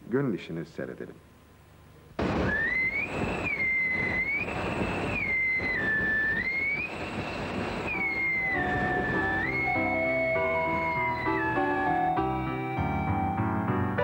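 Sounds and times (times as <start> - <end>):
steam train rushing and rattling: 2.2 - 13.0
high whistle tone sliding: 2.3 - 13.7
musical notes: 7.9 - 14.0.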